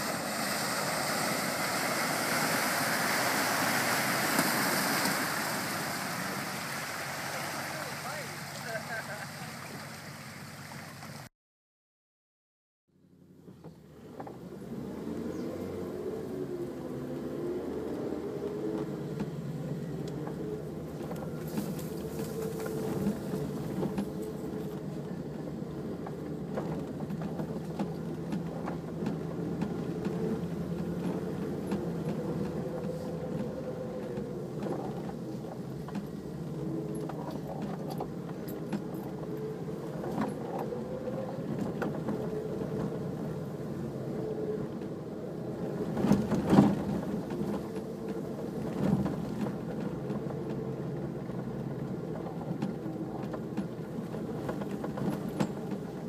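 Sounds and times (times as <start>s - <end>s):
off-road vehicle engine running: 0.0s - 11.3s, 13.0s - 56.0s
vehicle rattles and knocks: 13.3s - 14.7s, 17.0s - 56.0s.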